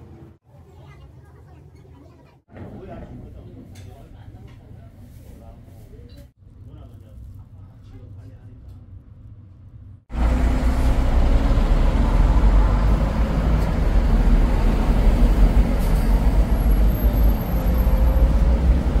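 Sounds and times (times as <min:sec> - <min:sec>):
city street traffic rumble: 0:03.0 - 0:19.0.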